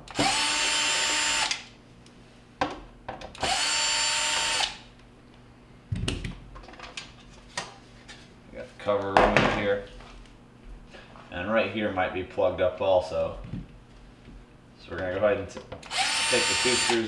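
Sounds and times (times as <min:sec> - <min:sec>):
cordless drill whine: 0:00.1 - 0:01.7, 0:03.4 - 0:04.8, 0:15.8 - 0:17.0.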